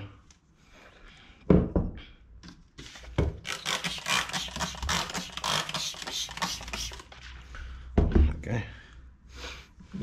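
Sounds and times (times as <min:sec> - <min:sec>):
spray bottle squirting: 0:03.4 - 0:07.2.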